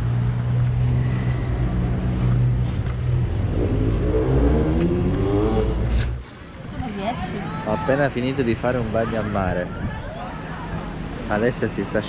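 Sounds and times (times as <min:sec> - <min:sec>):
vehicle engine humming: 0:00.0 - 0:12.0
engine revving up: 0:00.7 - 0:06.2.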